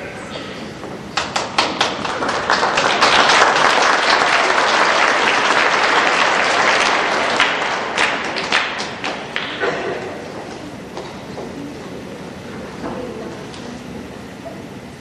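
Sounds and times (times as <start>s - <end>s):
audience applauding: 1.1s - 10.4s.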